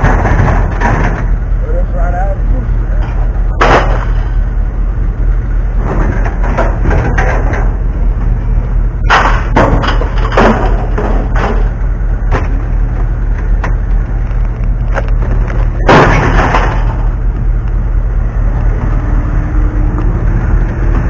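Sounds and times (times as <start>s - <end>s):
low rumble: 0.0s - 21.0s.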